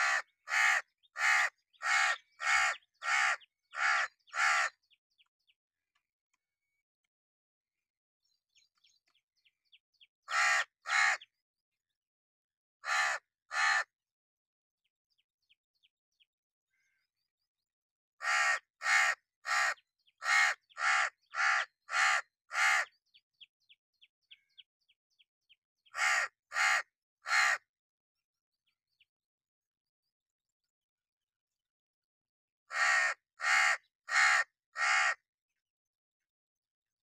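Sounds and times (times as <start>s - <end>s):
crow cawing: 0.0s - 4.8s, 10.3s - 11.3s, 12.8s - 13.9s, 18.2s - 22.9s, 25.9s - 27.6s, 32.7s - 35.2s.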